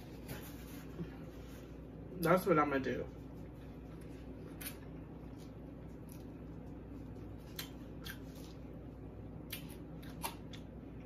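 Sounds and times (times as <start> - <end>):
low steady hum: 0.0 - 11.0
person chewing: 3.5 - 11.0.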